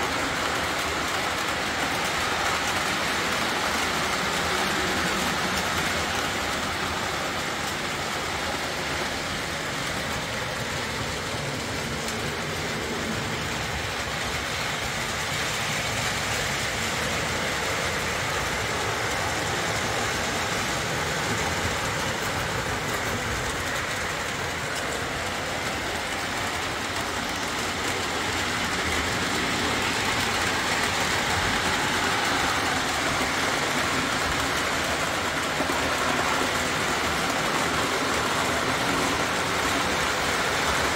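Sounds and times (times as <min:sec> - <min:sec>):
model train running on track: 0:00.0 - 0:40.9.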